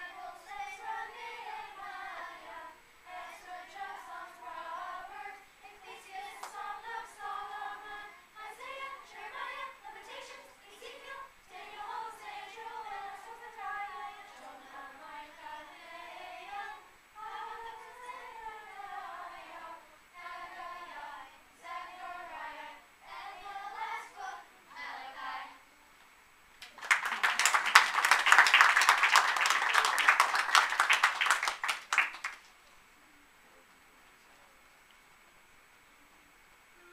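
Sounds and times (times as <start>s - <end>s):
children's choir singing: 0.0s - 25.6s
audience applause: 26.6s - 32.5s.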